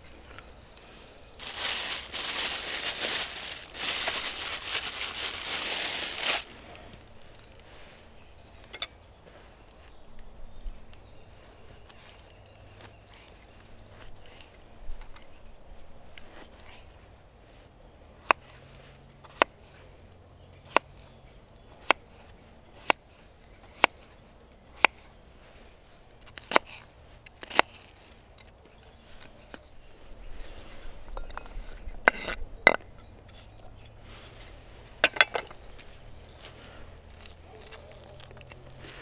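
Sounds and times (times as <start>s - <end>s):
rustling: 0.0s - 8.1s.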